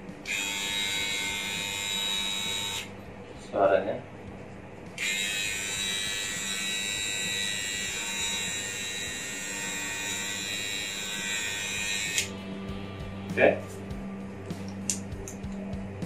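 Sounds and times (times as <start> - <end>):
electric hair clipper buzzing: 0.2 - 2.9, 5.0 - 12.4.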